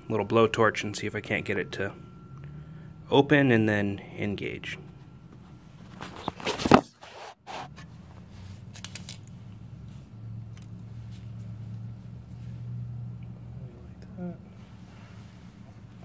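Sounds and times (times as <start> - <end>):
faint low hum: 0.0 - 16.0
scraping and rustling handling: 4.9 - 9.3.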